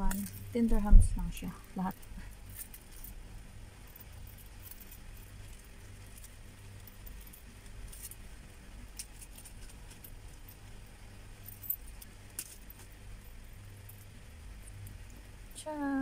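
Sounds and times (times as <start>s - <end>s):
metal earrings jingling: 0.0s - 3.2s, 3.8s - 8.2s.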